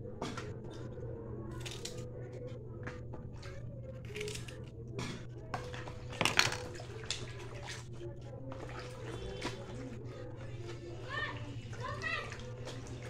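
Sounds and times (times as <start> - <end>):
food scraping and squishing: 2.8 - 13.0.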